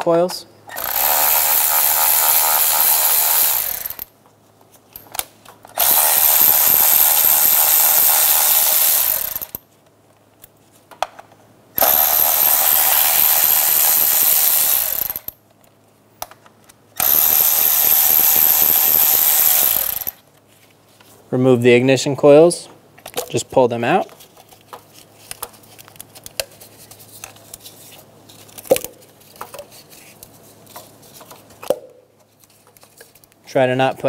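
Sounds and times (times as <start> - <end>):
electric ratchet running: 0.7 - 4.1, 5.8 - 9.6, 11.8 - 15.3, 17.0 - 20.2.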